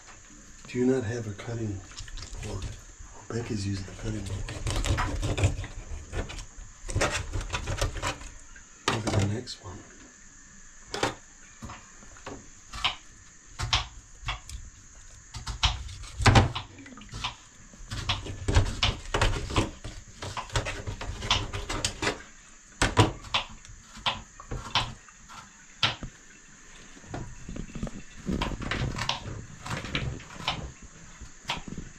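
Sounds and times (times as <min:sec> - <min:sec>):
knife scraping fish: 0:04.0 - 0:08.3.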